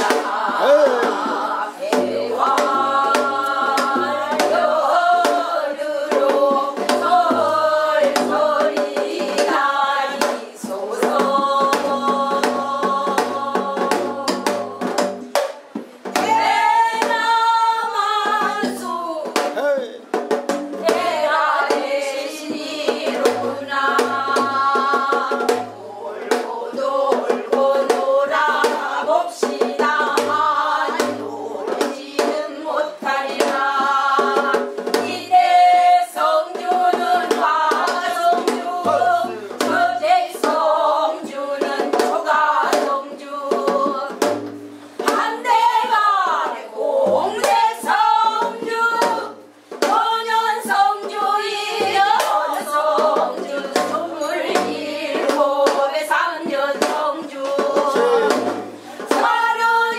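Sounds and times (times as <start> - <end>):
women singing folk song: 0.0 - 19.6, 20.4 - 59.9
sharp percussive beats: 0.0 - 59.9.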